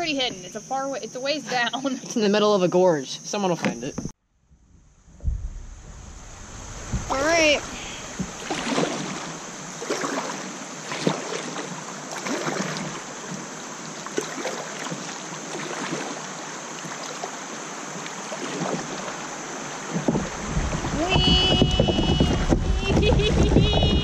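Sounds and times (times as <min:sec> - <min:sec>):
river water splashing against kayak: 0:05.2 - 0:24.0.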